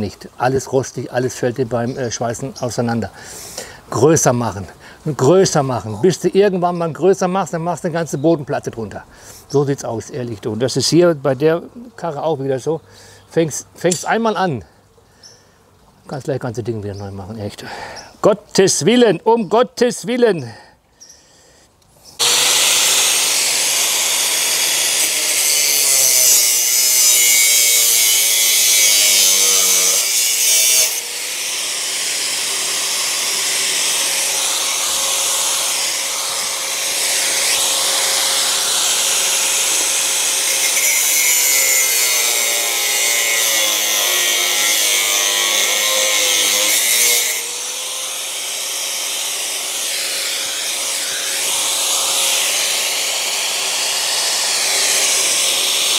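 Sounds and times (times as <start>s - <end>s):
angle grinder cutting metal: 13.9s - 14.2s, 22.2s - 55.9s.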